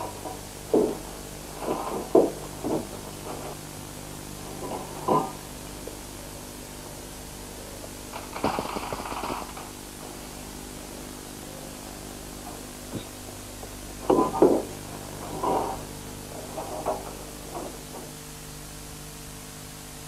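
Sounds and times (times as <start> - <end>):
steady hum: 0.0 - 20.0
spray cans knocking and scraping: 8.2 - 9.6.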